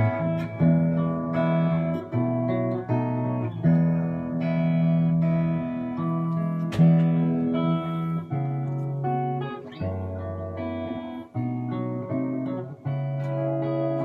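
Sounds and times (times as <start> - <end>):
electric guitar chords ringing: 0.0 - 14.0.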